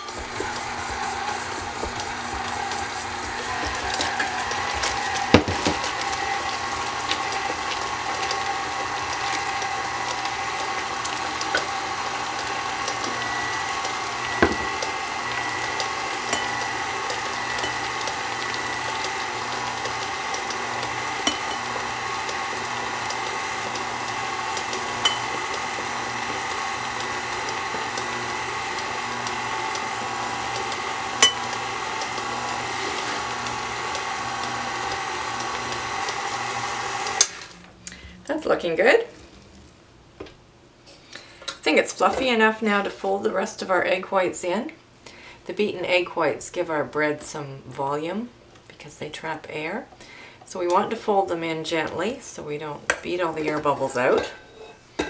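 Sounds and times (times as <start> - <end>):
stand mixer motor hum: 0.0 - 37.7.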